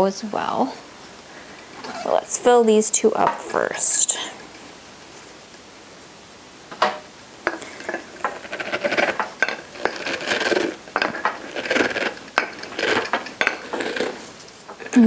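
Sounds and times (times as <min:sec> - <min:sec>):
wooden tamper mashing cabbage: 0:07.5 - 0:15.0.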